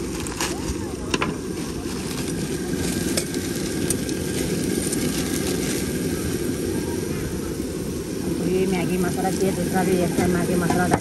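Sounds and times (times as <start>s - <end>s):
gas burner roaring: 0.0s - 11.0s.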